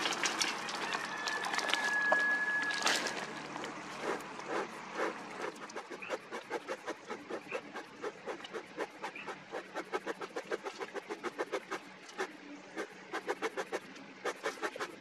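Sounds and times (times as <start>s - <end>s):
pellets pouring into metal container: 0.0s - 3.4s.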